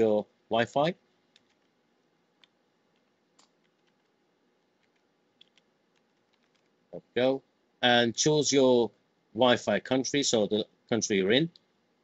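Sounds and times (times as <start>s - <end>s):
computer keyboard keystrokes: 1.3s - 1.7s, 2.4s - 4.2s, 4.8s - 6.7s.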